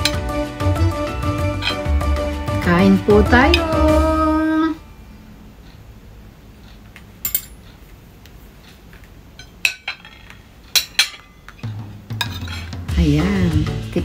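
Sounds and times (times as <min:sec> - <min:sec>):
cutlery clinking on a plate: 0:01.5 - 0:01.9, 0:07.2 - 0:07.6, 0:09.4 - 0:12.8.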